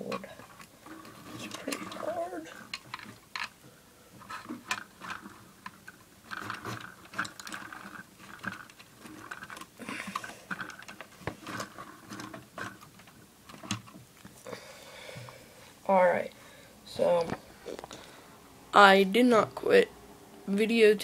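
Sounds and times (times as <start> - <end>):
plastic toy bricks clattering: 0.1 - 3.6, 4.2 - 14.0.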